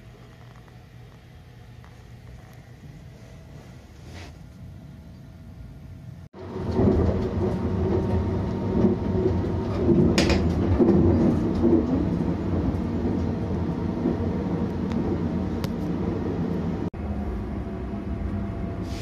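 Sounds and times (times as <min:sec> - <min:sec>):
train running rumble: 0:06.1 - 0:19.0.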